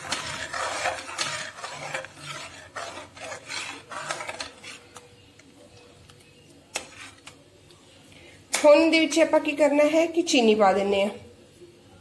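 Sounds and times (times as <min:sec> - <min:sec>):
steel spoon scraping a pan: 0:00.0 - 0:05.2, 0:06.7 - 0:07.4.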